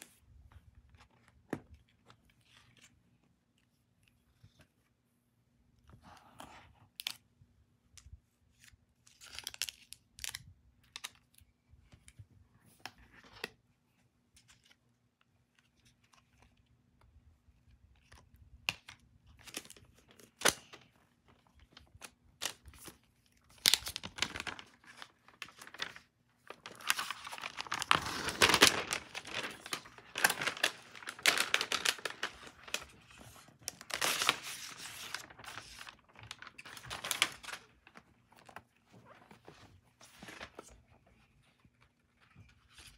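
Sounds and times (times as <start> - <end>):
packaging wrap rustling and tearing: 21.7 - 38.6.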